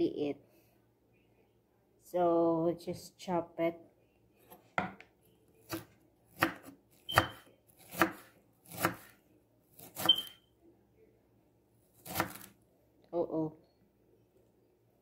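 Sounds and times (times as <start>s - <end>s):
knife chopping on cutting board: 4.8s - 5.0s, 5.6s - 9.2s, 12.0s - 12.5s.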